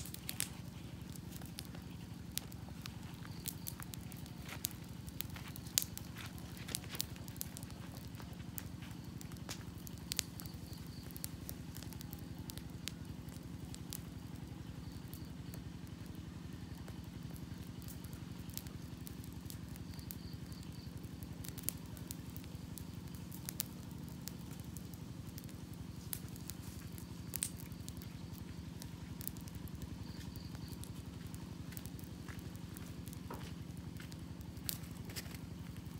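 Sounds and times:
campfire crackles and pops: 0.0 - 35.9
fire low rumble: 0.0 - 35.9.

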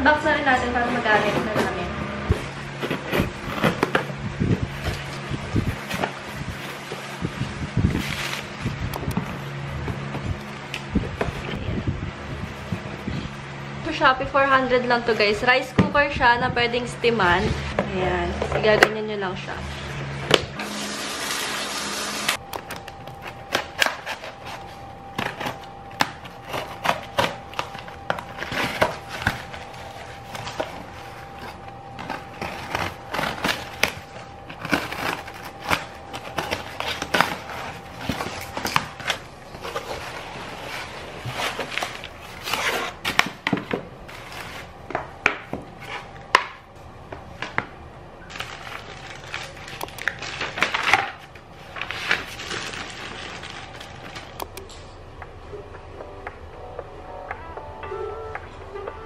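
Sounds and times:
cardboard box crackling: 22.8 - 43.3.

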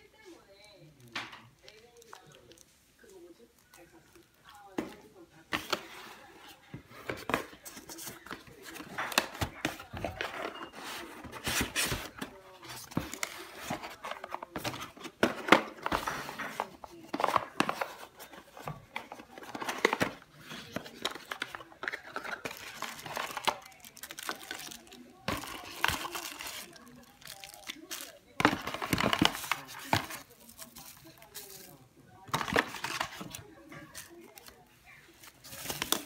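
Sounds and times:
plastic wrapping crinkling: 7.0 - 36.0.

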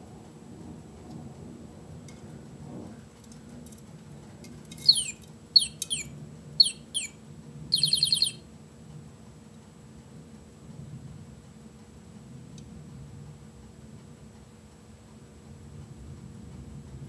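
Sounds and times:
budgerigar chirps: 4.8 - 8.4
buzzy chattering trill: 4.8 - 8.4.

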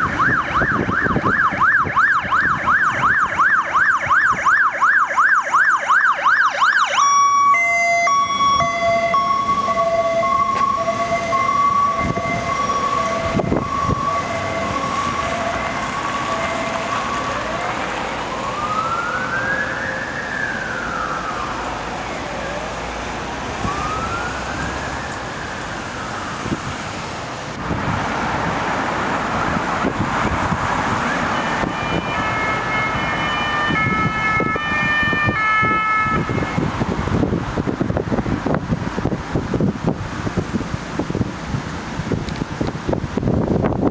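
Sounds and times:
two-tone siren: 0.0 - 23.0, 23.6 - 26.5, 29.3 - 37.0
wailing siren: 0.0 - 38.6
traffic noise: 0.0 - 43.9.

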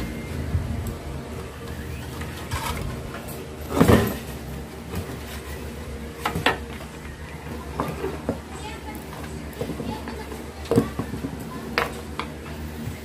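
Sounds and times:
plastic fan clunking: 6.2 - 12.9.

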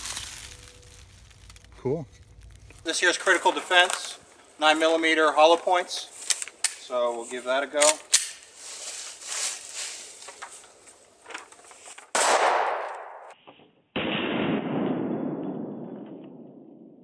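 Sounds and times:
pistol shots: 12.2 - 13.2
gunshot echo: 12.2 - 13.4, 14.0 - 17.0.

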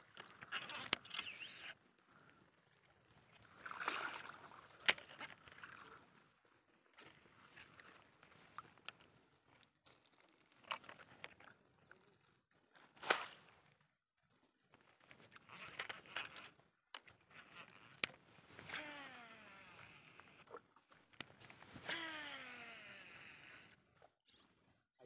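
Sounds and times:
fishing reel spool whirring: 18.6 - 20.4, 21.8 - 23.8.

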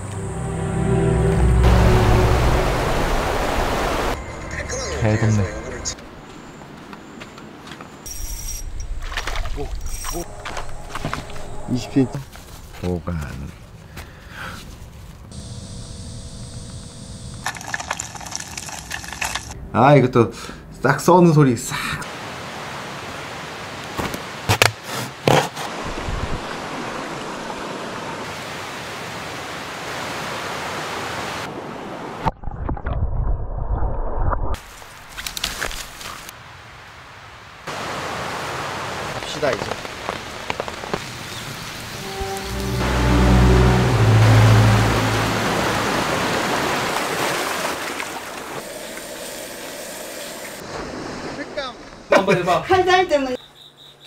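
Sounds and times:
mountain stream rushing: 1.1 - 6.9, 22.0 - 24.6, 25.6 - 32.2, 36.4 - 51.5.

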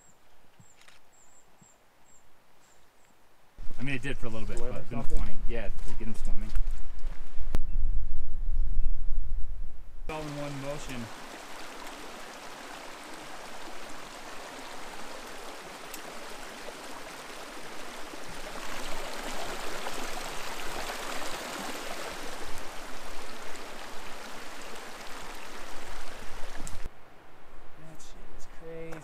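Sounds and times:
stream splashing over rocks: 10.1 - 26.9.

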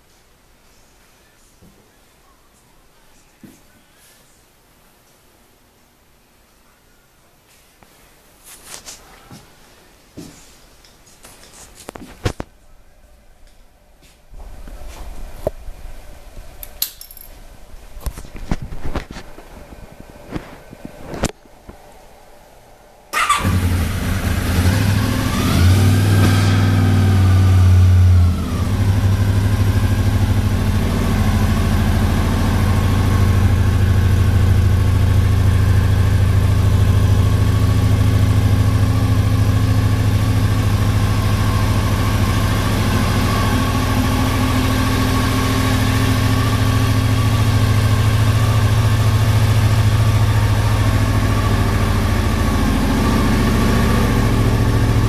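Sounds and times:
motorcycle engine starting and idling: 23.1 - 55.0.

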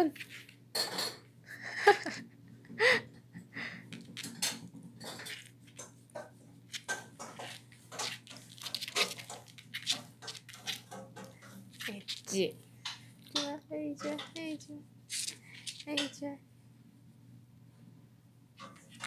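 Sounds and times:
dog claws tapping on hard floor: 4.0 - 14.5
hand rustling fur: 11.7 - 12.5.

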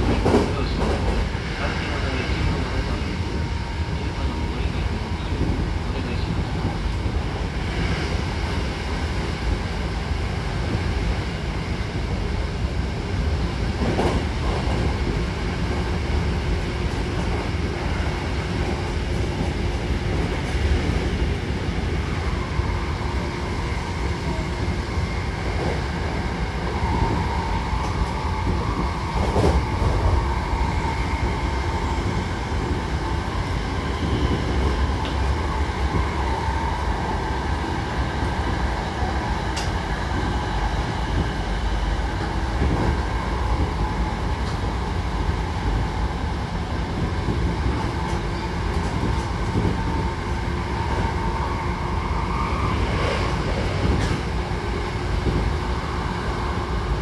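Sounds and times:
train wheels rumbling: 0.0 - 57.0.

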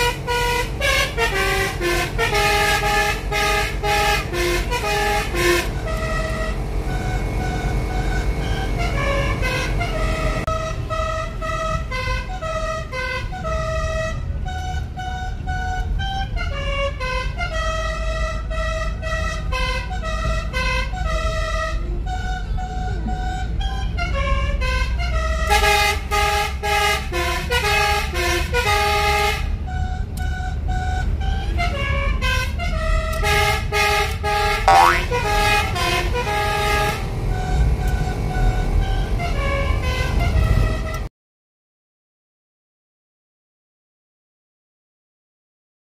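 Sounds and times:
multi-trumpet horn playing tunes: 0.0 - 6.5, 33.2 - 36.9
road rumble: 0.0 - 41.1.

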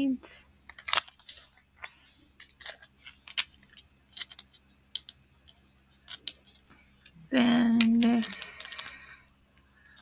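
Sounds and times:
card rustle: 0.7 - 6.7, 8.0 - 9.2.

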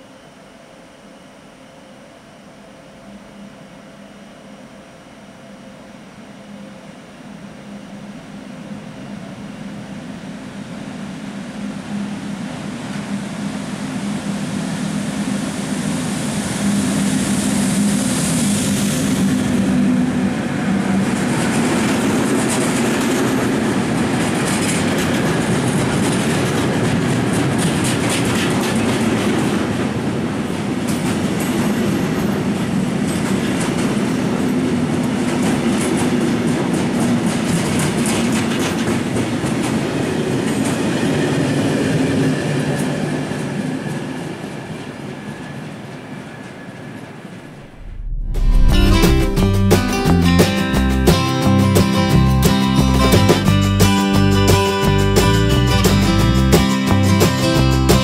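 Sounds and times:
electric locomotive humming: 2.8 - 35.3.

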